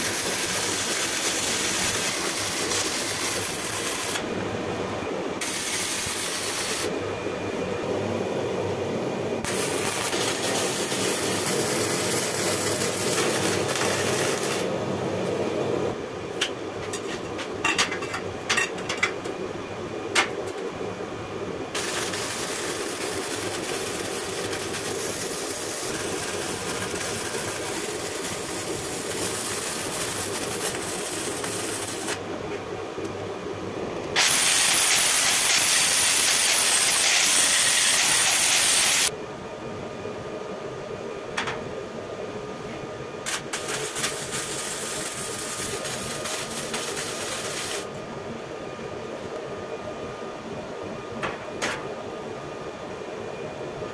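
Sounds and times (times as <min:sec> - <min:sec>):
welding arc hissing: 0:00.0 - 0:04.2, 0:05.4 - 0:06.9, 0:09.4 - 0:14.7, 0:21.7 - 0:32.2, 0:34.1 - 0:39.1, 0:43.2 - 0:48.0.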